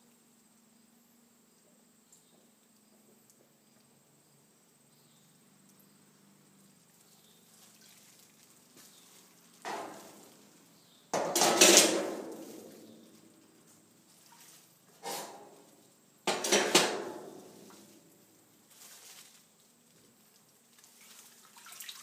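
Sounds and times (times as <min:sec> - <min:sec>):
water splashing in tank: 0:07.5 - 0:10.5, 0:20.6 - 0:22.0.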